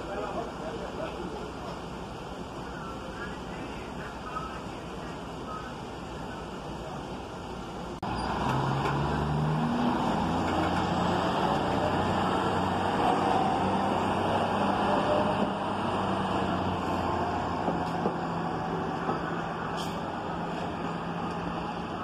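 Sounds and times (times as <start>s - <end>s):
diesel locomotive engine drone: 0.0s - 22.0s
steel wheels rumbling on rails: 7.2s - 22.0s.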